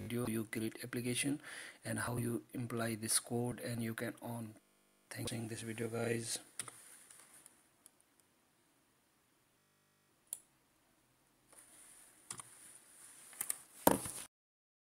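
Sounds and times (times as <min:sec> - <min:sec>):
computer mouse clicking: 0:12.3 - 0:12.5.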